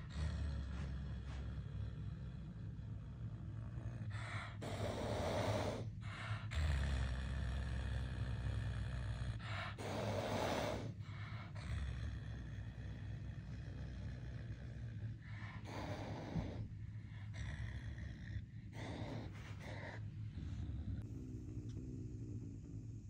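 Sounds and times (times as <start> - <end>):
wild cat hissing: 4.1 - 6.8, 9.4 - 12.2, 15.1 - 17.4, 18.0 - 23.0.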